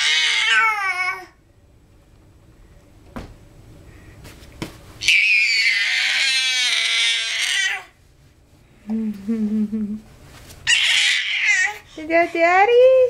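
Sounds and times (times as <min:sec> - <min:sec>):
baby squealing: 0:05.0 - 0:07.9, 0:10.7 - 0:11.8.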